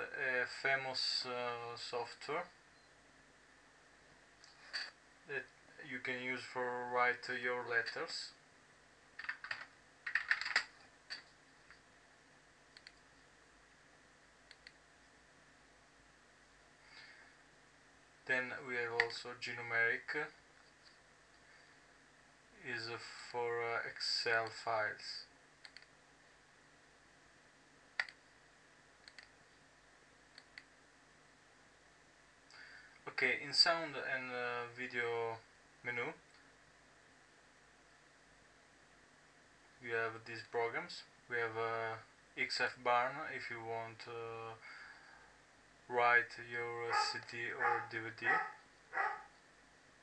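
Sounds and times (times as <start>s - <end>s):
keyboard keystrokes: 9.2s - 11.2s
mouse clicks: 12.7s - 13.0s, 14.5s - 14.8s, 25.6s - 25.9s, 28.0s - 28.2s, 29.0s - 29.4s.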